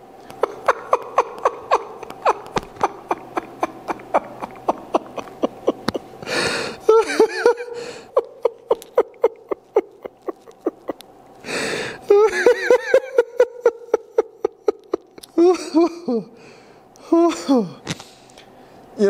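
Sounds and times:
man laughing helplessly: 0.4 - 16.4
breathy exhale: 6.2 - 6.8, 11.4 - 12.0.

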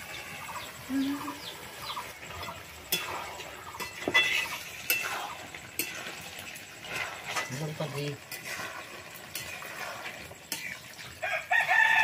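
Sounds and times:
birds chirping: 0.0 - 5.4
metal utensils clinking on cookware: 1.8 - 11.2.

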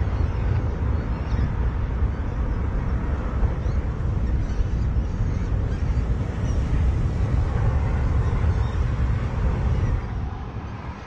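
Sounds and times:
low rumbling background noise: 0.0 - 11.0.

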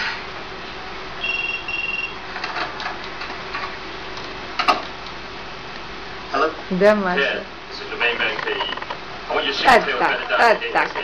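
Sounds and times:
short electronic beeps: 1.2 - 2.2.

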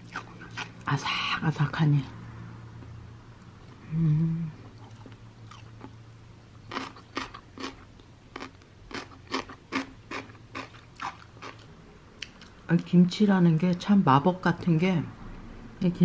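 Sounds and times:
crunchy chewing: 4.6 - 12.6.

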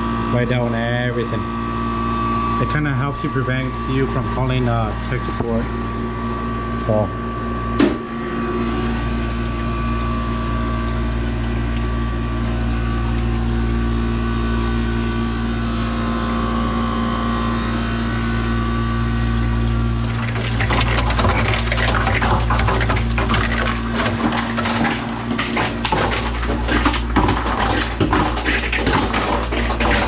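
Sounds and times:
ice machine humming: 0.0 - 30.0.

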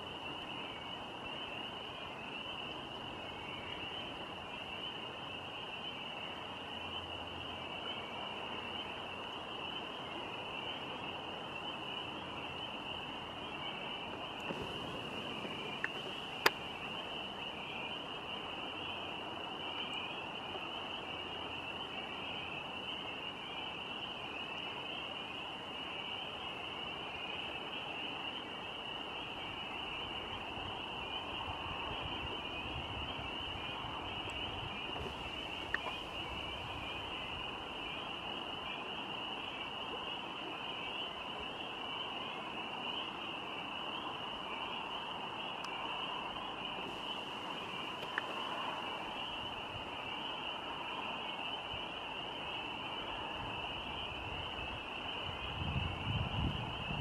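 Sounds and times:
river water flowing: 6.4 - 21.6, 42.4 - 53.2.

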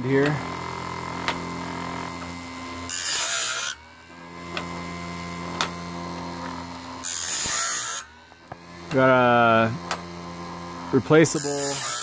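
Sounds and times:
abrasive wheel grinding blade: 0.0 - 12.0
grinder motor humming: 0.0 - 12.0
feed mechanism clicks: 4.5 - 4.9.

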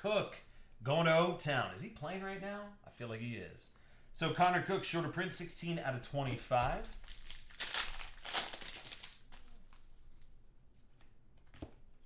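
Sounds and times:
cards rustling: 6.3 - 10.3
foil wrapper crinkling and tearing: 6.8 - 9.8.

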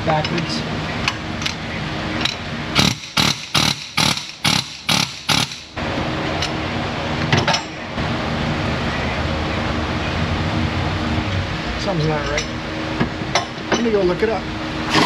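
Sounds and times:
pneumatic tool hammering: 2.2 - 5.8.

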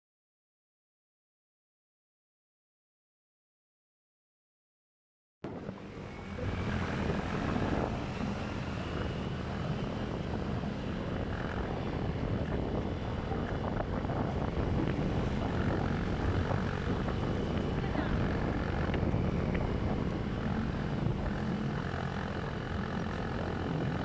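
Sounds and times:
motorcycle engine hum: 5.4 - 24.0
road noise: 5.4 - 24.0
wind rushing over microphone: 5.4 - 24.0.

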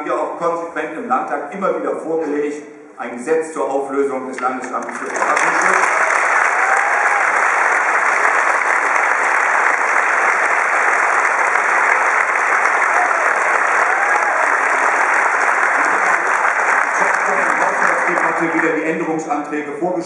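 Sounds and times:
audience applauding: 4.8 - 19.1.

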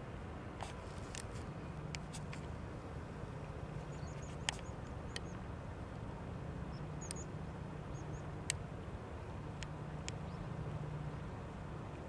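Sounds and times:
birds chirping: 3.6 - 5.5, 6.6 - 8.6, 9.5 - 11.2.

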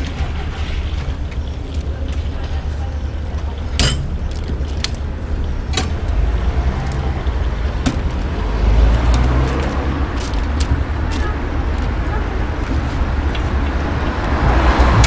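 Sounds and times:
street traffic rumble: 0.0 - 15.0
vehicle passing: 5.1 - 15.0.

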